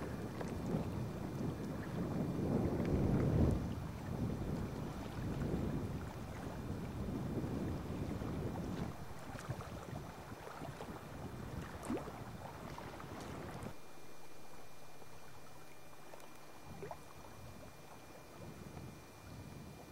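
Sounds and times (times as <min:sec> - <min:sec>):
wind on microphone: 0:00.0 - 0:13.8, 0:15.1 - 0:19.9
faint steady hum: 0:00.0 - 0:19.9
water lapping against kayak hull: 0:00.0 - 0:19.9
small splashes: 0:08.8 - 0:13.8.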